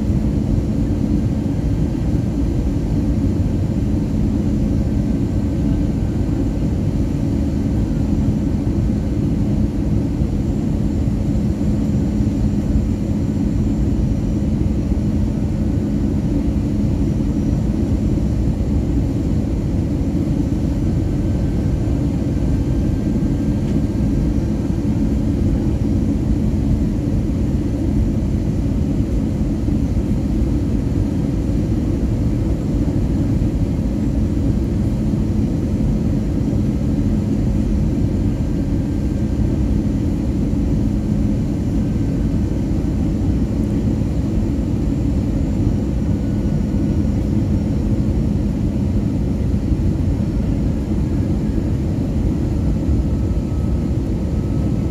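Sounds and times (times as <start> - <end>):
jet engines rumbling: 0.0 - 54.9
low steady hum: 0.0 - 54.9.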